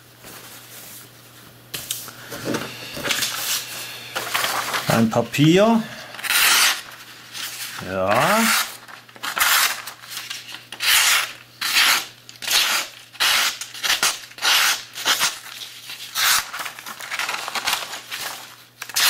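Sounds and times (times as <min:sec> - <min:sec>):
knife slicing paper: 0:06.2 - 0:19.0.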